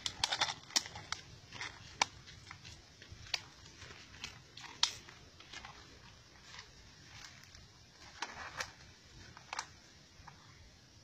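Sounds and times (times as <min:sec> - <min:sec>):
dry leaves and twigs crackling: 0:00.0 - 0:10.7.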